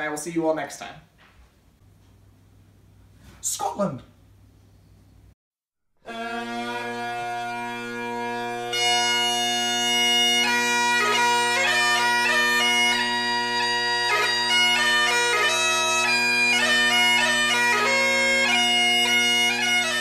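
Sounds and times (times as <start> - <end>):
bagpipe music: 6.0 - 20.0.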